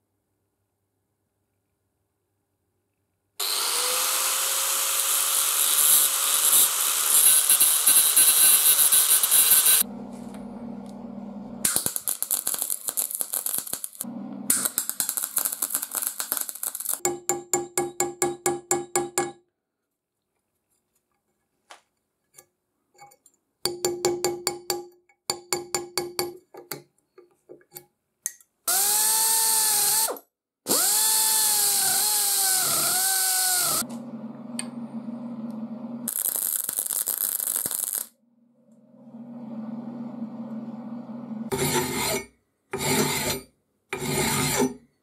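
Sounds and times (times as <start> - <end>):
rotary grinder cutting steel: 3.4 - 9.8, 28.7 - 33.9, 41.5 - 43.4, 44.0 - 44.8
welder humming: 3.4 - 17.0, 30.7 - 38.1, 38.7 - 41.6
welding arc hiss: 3.5 - 9.8, 11.7 - 17.0, 36.1 - 38.1.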